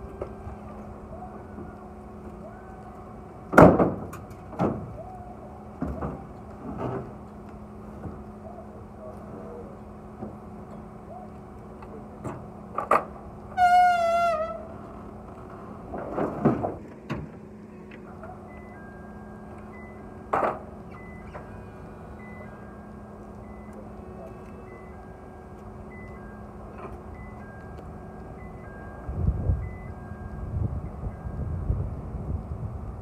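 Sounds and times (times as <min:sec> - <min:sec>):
steady low hum: 0:00.0 - 0:33.0
faint repeating beeps: 0:18.2 - 0:20.3, 0:20.9 - 0:31.6.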